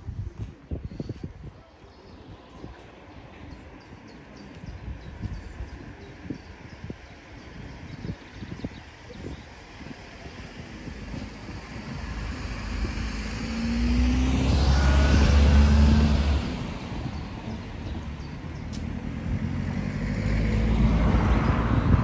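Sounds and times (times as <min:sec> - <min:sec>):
cars driving past: 0:09.7 - 0:22.0.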